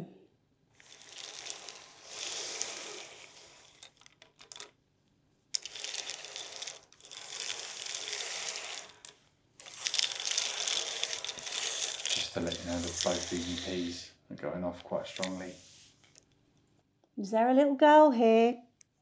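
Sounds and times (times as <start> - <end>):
game tiles clattering on table: 0.8 - 4.7, 5.6 - 13.8, 15.0 - 16.2.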